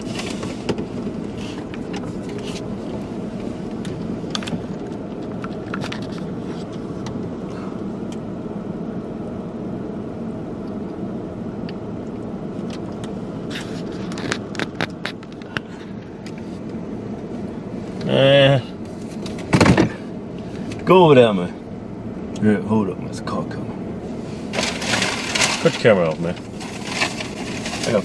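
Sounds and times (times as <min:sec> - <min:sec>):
car engine hum from inside: 0:00.0 - 0:28.0.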